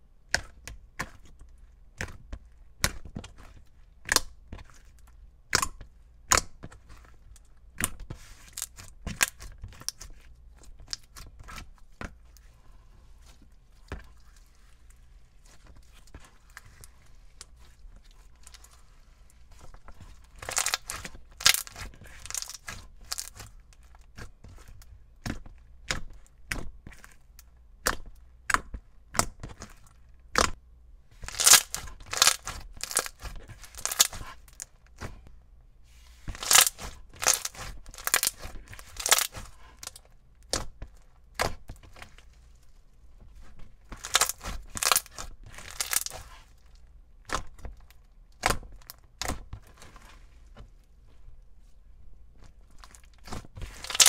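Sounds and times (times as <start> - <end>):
slime popping and crackling: 7.8 - 10.0, 20.3 - 23.5, 31.2 - 34.7, 36.3 - 40.7, 44.0 - 46.4, 52.8 - 54.0.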